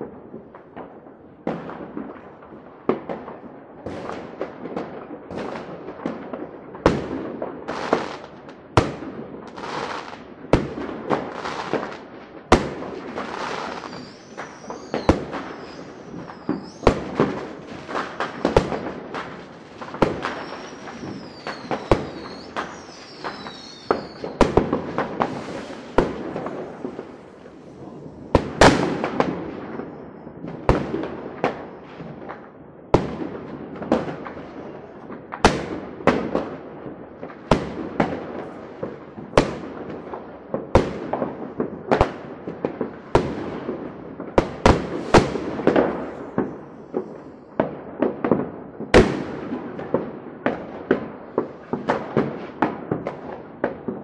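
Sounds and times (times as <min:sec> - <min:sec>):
fireworks bangs and crackles: 0:00.0 - 0:54.0
firework whistles: 0:13.2 - 0:30.4, 0:44.7 - 0:47.5.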